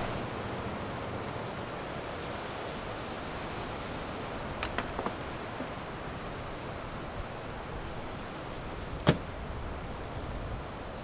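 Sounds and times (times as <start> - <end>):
wind: 0.0 - 11.0
seat shutting knock: 9.0 - 9.3.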